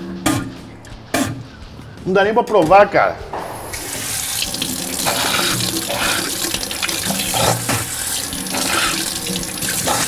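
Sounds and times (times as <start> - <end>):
tap water splashing into sink: 3.7 - 10.0.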